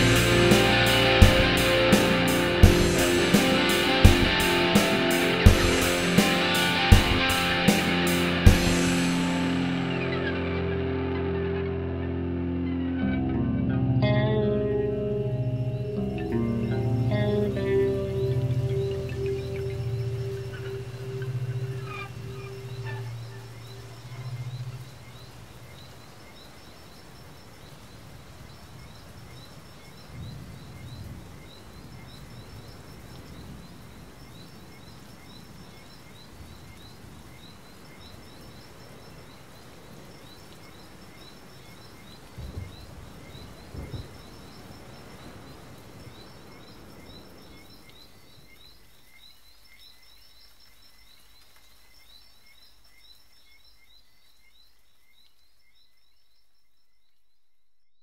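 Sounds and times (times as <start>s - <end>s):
low hiss: 0.0s - 56.3s.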